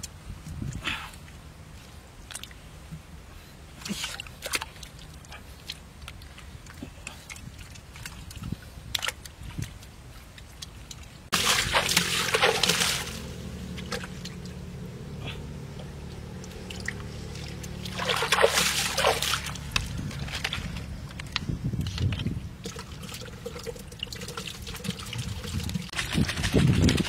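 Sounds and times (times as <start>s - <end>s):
hands splashing muddy water: 3.8s - 14.6s, 16.1s - 27.0s
water trickling: 22.2s - 26.0s.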